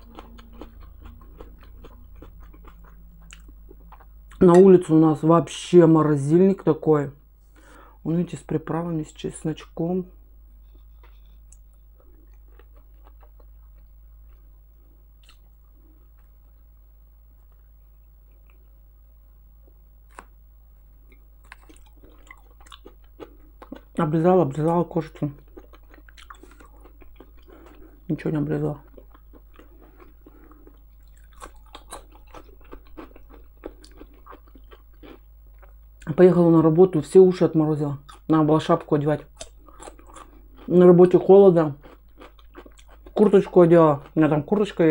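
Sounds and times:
crisp cucumber crunching: 0.0 - 4.7, 10.9 - 14.5, 20.1 - 20.3, 21.1 - 36.2, 38.0 - 44.9
person chewing: 0.0 - 4.7, 10.5 - 16.6, 17.4 - 18.8, 20.1 - 20.3, 21.1 - 24.0, 24.6 - 36.2, 38.0 - 38.3, 39.4 - 44.7
faint low hum: 0.0 - 44.9.

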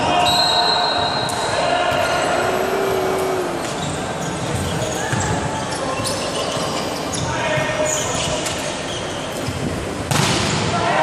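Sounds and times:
players shouting: 1.5 - 4.2
hall background noise: 1.5 - 5.6.

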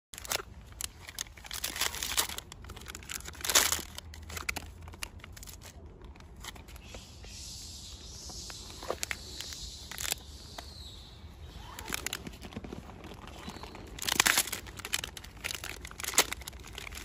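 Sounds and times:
plastic wrapper crinkling and tearing: 0.2 - 6.8, 8.8 - 10.7, 11.4 - 17.0.

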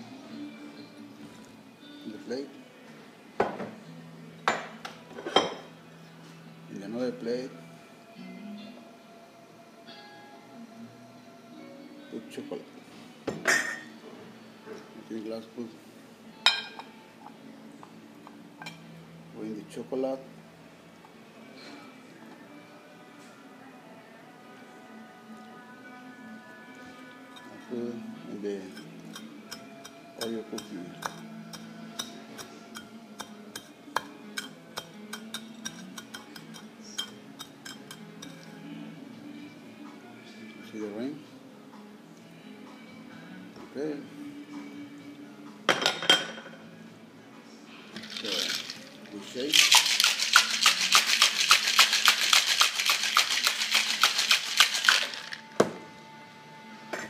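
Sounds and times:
ice rattling in cocktail shaker: 48.0 - 55.5.

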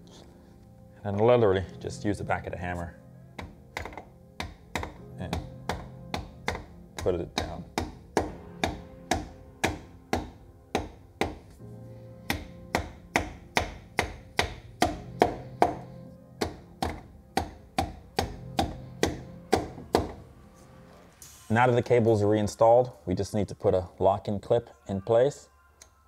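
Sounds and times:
percussive beat: 3.8 - 11.4.

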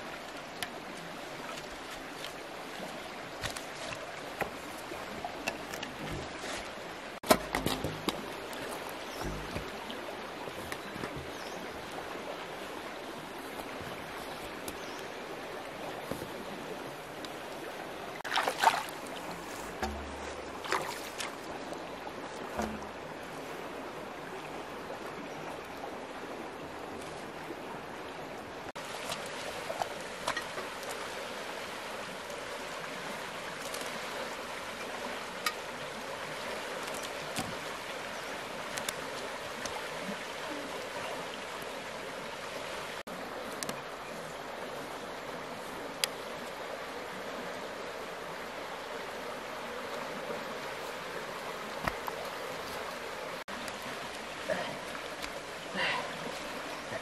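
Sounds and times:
running water rushing: 0.0 - 57.0
short splashes or knocks: 7.2 - 8.4, 18.2 - 21.5, 22.5 - 23.1.

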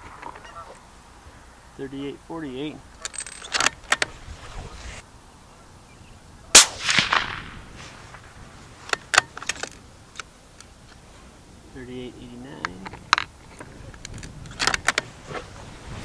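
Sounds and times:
rifle shot: 6.5 - 8.4.

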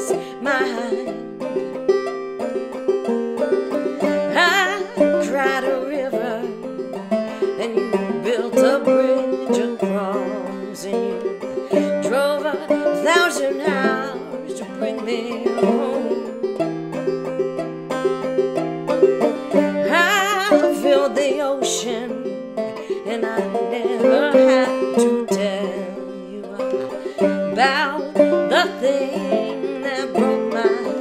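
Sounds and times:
woman singing with vibrato: 0.0 - 1.6, 4.0 - 6.7, 7.3 - 16.3, 19.6 - 31.0
banjo playing: 0.0 - 31.0.

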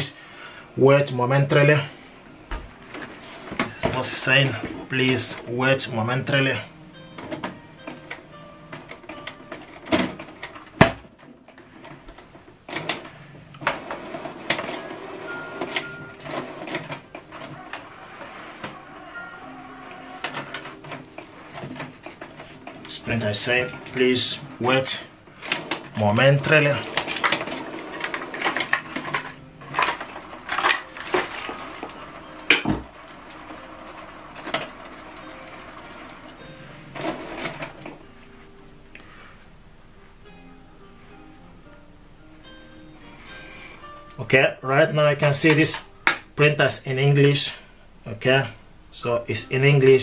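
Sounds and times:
faint steady hum: 0.0 - 50.0
hard objects clattering: 25.4 - 36.3.

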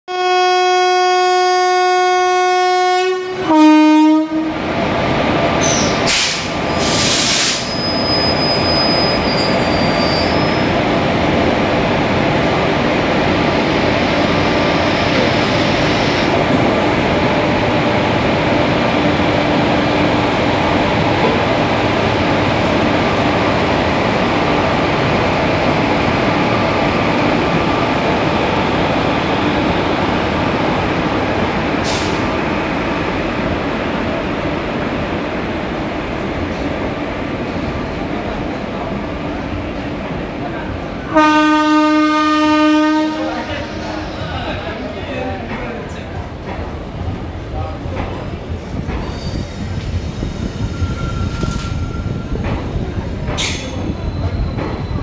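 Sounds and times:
locomotive horn: 0.1 - 4.6, 41.1 - 43.7
sharp hisses: 5.7 - 7.8
train wheels rolling: 43.4 - 55.0.

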